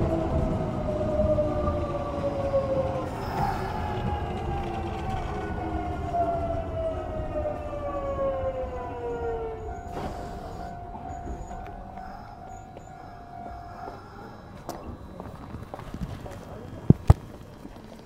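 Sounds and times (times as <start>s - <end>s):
electric train motor whine: 0.0s - 18.0s
train running rumble: 0.0s - 18.0s
steady high hum: 9.3s - 17.8s.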